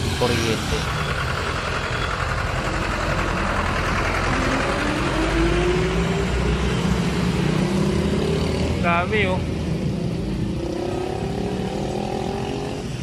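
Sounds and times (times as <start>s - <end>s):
vehicle engine running: 0.0s - 8.2s.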